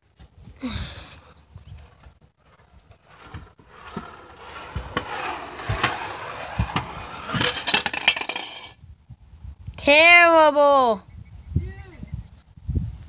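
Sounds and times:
skateboard wheels rolling on concrete: 0:00.0 - 0:08.8
skateboard clacks and knocks: 0:03.1 - 0:08.7.

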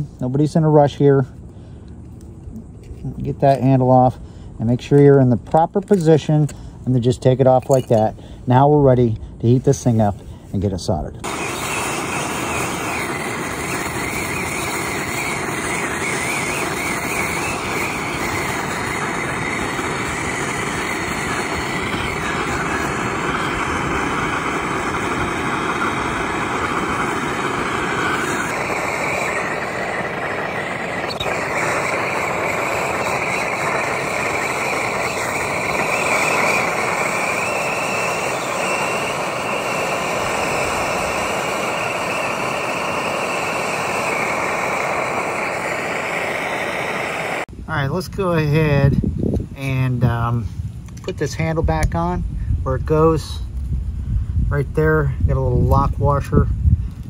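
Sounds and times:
soldering torch burning: 0:11.2 - 0:47.5.

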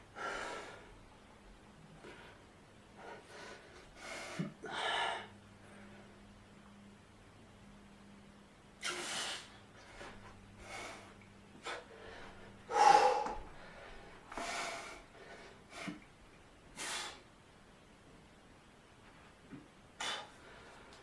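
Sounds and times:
man breathing hard: 0:03.0 - 0:06.2, 0:08.8 - 0:16.0, 0:20.0 - 0:21.0.

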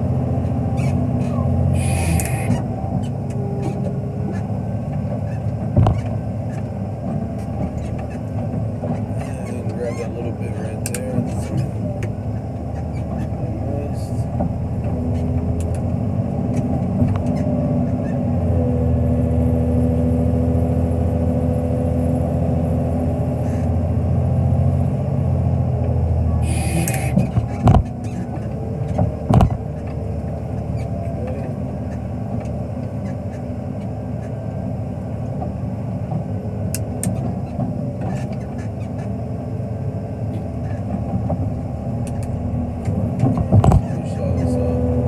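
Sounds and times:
diesel engine running: 0:00.0 - 0:45.0.

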